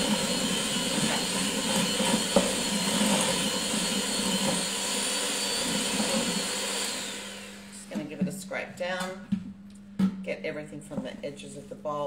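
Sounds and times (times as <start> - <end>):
electric mixer motor whine: 0.0 - 7.9.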